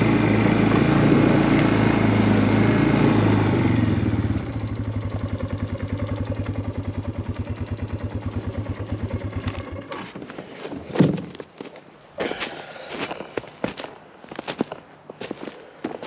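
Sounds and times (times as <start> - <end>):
atv engine idling: 0.0 - 10.0.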